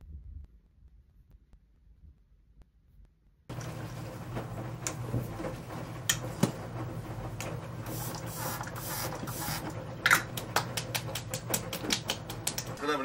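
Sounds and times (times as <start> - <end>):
spray bottle hissing: 7.9 - 9.7.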